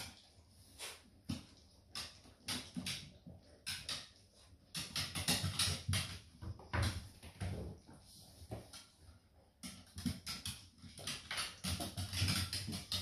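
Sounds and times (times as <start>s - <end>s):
dog claws tapping on wooden floor: 1.2s - 7.8s, 9.6s - 13.0s.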